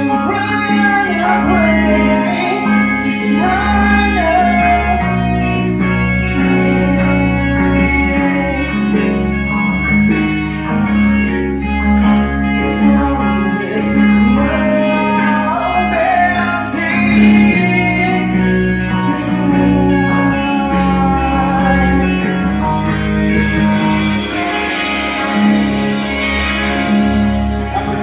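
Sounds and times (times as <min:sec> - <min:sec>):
man singing: 0:00.0 - 0:09.2, 0:12.5 - 0:25.7, 0:27.7 - 0:28.0
rock band playing: 0:00.0 - 0:28.0
cymbal crashes: 0:22.5 - 0:28.0.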